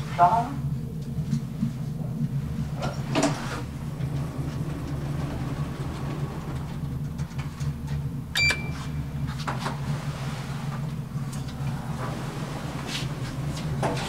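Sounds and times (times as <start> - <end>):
elevator hum: 0.0 - 14.0
electronic button beep: 8.4 - 8.9.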